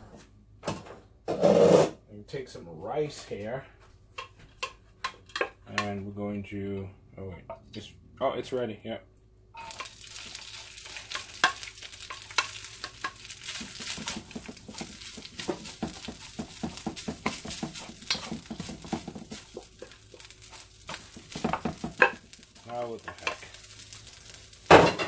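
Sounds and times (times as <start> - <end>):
spatula scraping a wok: 1.3 - 2.0, 9.6 - 25.0
rice sizzling in a wok: 9.6 - 25.0.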